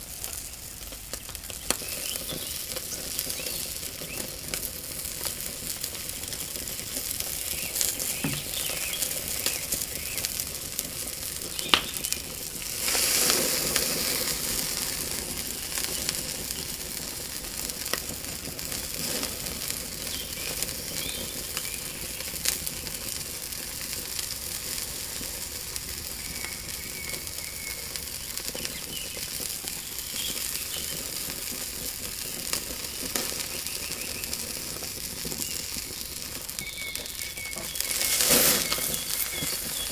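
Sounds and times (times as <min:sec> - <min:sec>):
fat crackling and popping: 0:00.0 - 0:39.9
steak sizzling on a grill: 0:00.0 - 0:39.9
sharp crack: 0:11.4 - 0:16.3.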